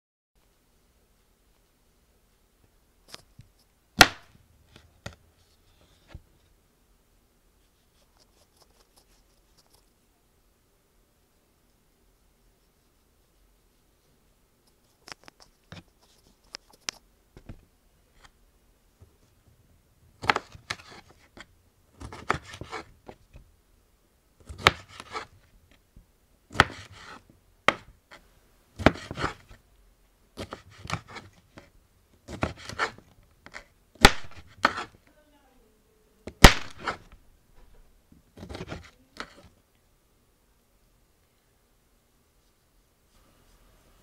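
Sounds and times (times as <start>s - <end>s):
knife chopping on wooden board: 22.0s - 22.9s, 24.5s - 25.3s, 26.5s - 27.1s, 27.7s - 27.9s, 28.8s - 29.4s, 32.3s - 33.0s, 34.0s - 34.9s.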